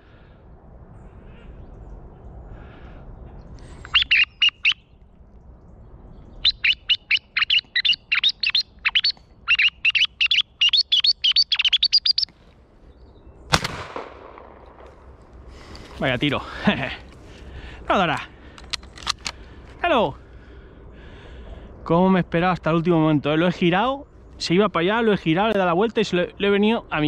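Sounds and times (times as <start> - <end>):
high quick chirping calls: 3.7 - 4.9, 6.2 - 12.4
shotgun shot: 13.5 - 15.1.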